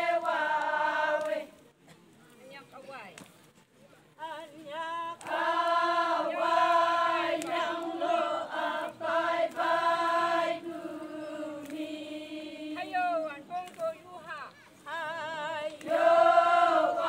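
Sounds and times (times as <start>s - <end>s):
women singing in chorus: 0.0s - 1.6s, 4.2s - 13.3s, 14.8s - 17.0s.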